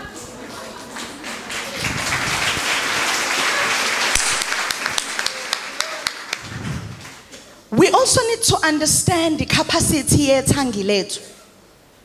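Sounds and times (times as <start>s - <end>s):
audience applauding: 0.7s - 7.3s.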